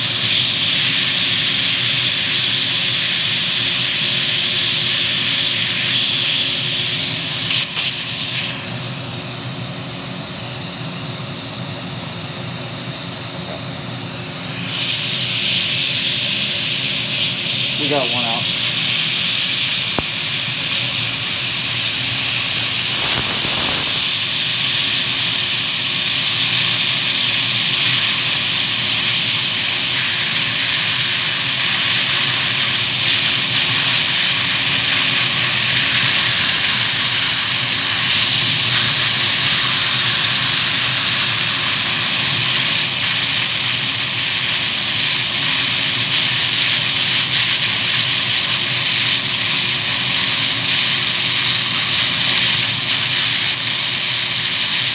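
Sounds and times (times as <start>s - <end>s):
dental drill whine: 0.0s - 54.9s
suction and water spray hiss: 14.4s - 32.6s.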